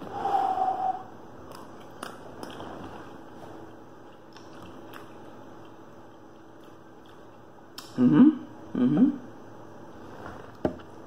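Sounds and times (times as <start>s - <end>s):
person chewing pasta: 1.4s - 7.9s.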